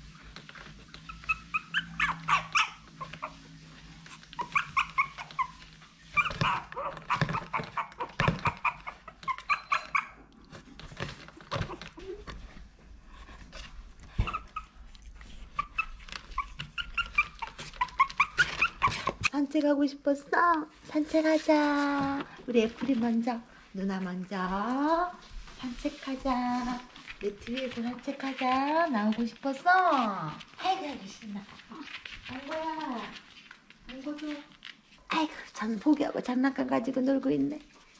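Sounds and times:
puppy whimpering and yipping: 0:00.6 - 0:10.3, 0:14.1 - 0:19.3.

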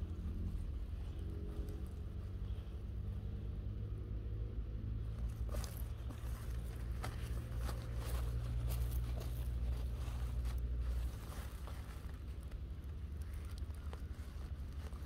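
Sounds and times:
dry soil crackling: 0:00.0 - 0:15.0
leaves rustling: 0:05.1 - 0:15.0.

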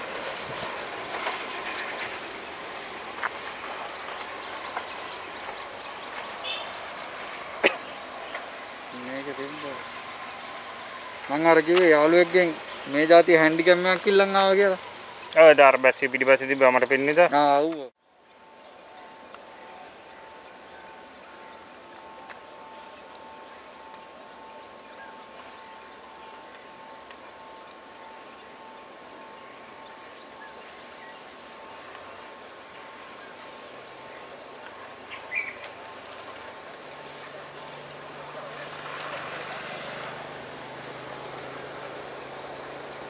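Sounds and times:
locomotive engine hum: 0:00.0 - 0:17.9, 0:31.4 - 0:43.0
insect chirp: 0:00.0 - 0:43.0
insect chorus drone: 0:00.0 - 0:43.0.

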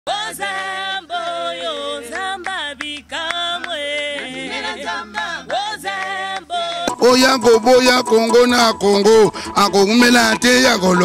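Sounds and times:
group singing a cappella: 0:00.1 - 0:08.6.

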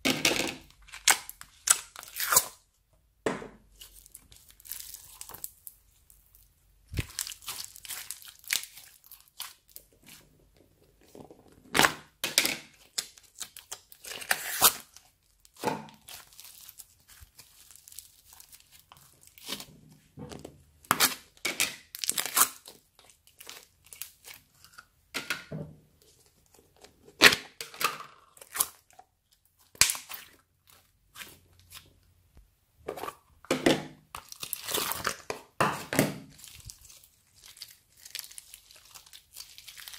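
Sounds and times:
slime crackling and popping: 0:03.8 - 0:10.1, 0:29.6 - 0:30.4, 0:36.2 - 0:39.9.

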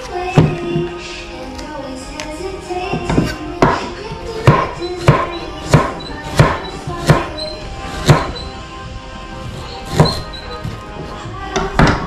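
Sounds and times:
knife chopping on wooden board: 0:03.1 - 0:03.8, 0:04.4 - 0:07.3, 0:08.0 - 0:08.4, 0:09.9 - 0:10.3.

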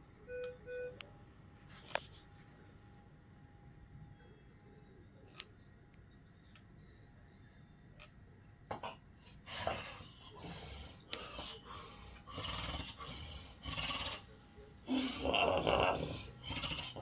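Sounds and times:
person snoring loudly: 0:14.9 - 0:17.0.

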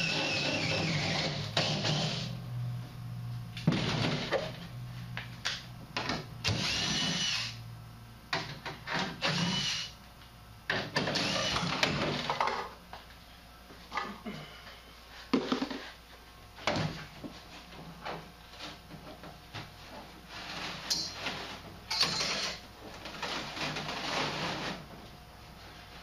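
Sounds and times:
drill whining through sheet metal: 0:00.0 - 0:02.4, 0:06.4 - 0:07.6, 0:08.9 - 0:10.0, 0:11.0 - 0:12.3, 0:21.9 - 0:22.6.

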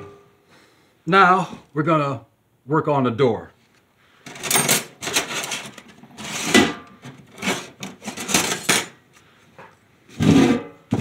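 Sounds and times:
sheet metal scraping on wood: 0:05.0 - 0:08.9, 0:10.2 - 0:10.8.

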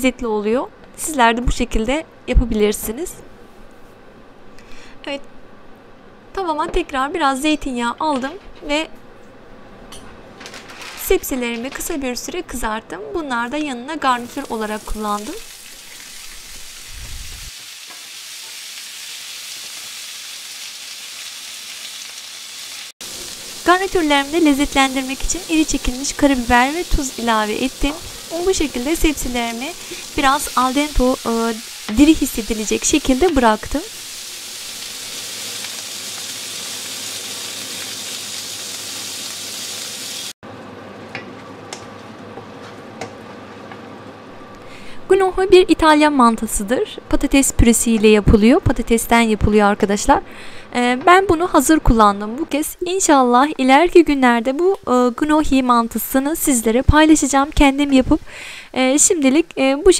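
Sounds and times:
vegetables sizzling in a pan: 0:14.0 - 0:40.4, 0:53.7 - 0:59.9
gnocchi frying with pops: 0:14.2 - 0:40.2.

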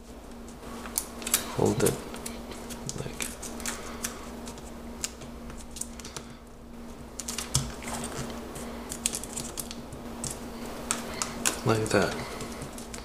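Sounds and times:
faint steady hum: 0:00.0 - 0:13.0
paper crackling and creasing: 0:07.2 - 0:13.0.

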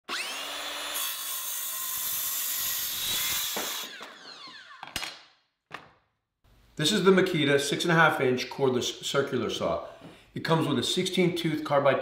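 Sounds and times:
circular saw cutting wood: 0:00.0 - 0:05.0
saw motor spinning down: 0:00.1 - 0:05.0.

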